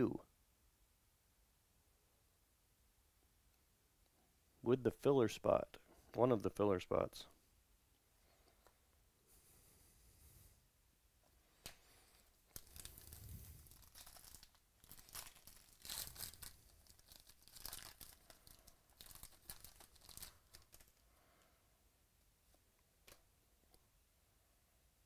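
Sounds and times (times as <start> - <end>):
foil wrapper tearing and crinkling: 12.5 - 21.0.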